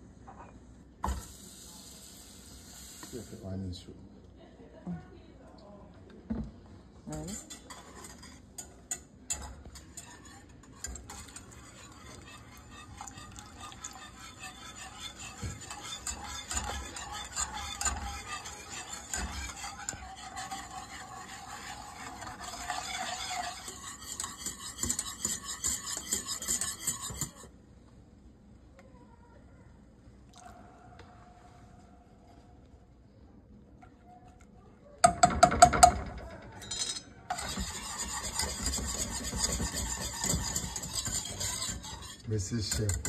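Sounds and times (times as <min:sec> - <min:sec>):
utensil clinking against pot: 0:07.1 - 0:27.5, 0:35.0 - 0:43.0
utensil scraping cookware: 0:07.1 - 0:27.5, 0:35.0 - 0:43.0.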